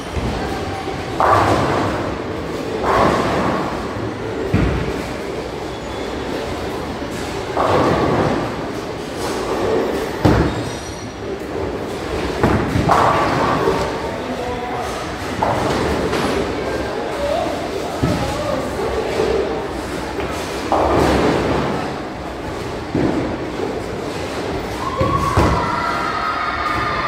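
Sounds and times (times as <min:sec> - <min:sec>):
bowling balls rolling: 0:00.0 - 0:14.3, 0:17.5 - 0:27.0
bowling balls thudding: 0:00.1 - 0:05.7, 0:06.3 - 0:14.0, 0:19.8 - 0:25.8.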